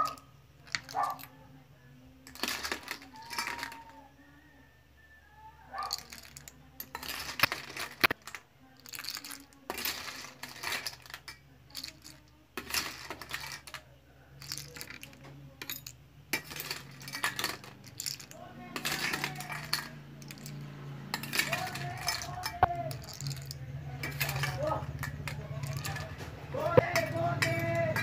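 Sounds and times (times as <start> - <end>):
shells clattering on metal: 0.0 - 1.4, 2.2 - 4.1, 5.8 - 28.0
spoon scraping a steel bowl: 18.8 - 28.0.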